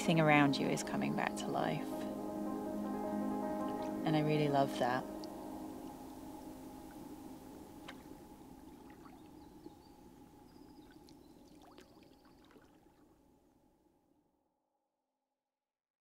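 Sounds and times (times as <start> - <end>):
water dripping and trickling: 7.8 - 13.2
small paddle splashes: 11.0 - 13.1.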